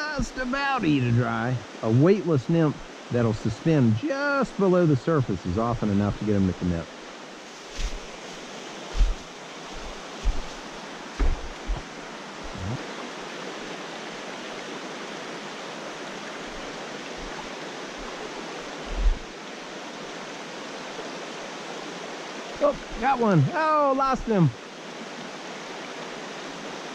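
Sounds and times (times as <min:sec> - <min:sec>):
creek rushing over rocks: 0:00.0 - 0:26.9
dull low thumps: 0:08.9 - 0:12.8, 0:18.9 - 0:19.2.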